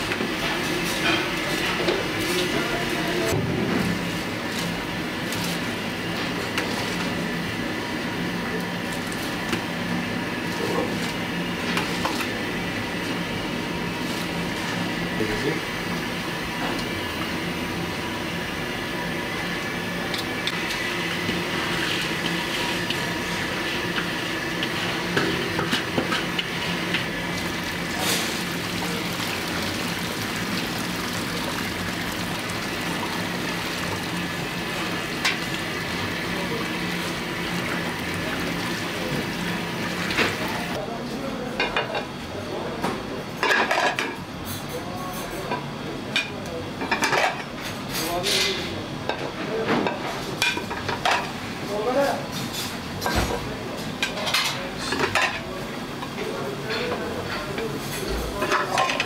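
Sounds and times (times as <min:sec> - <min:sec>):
kitchen hum: 0:00.0 - 0:59.0
rice pouring into pan: 0:27.4 - 0:39.8.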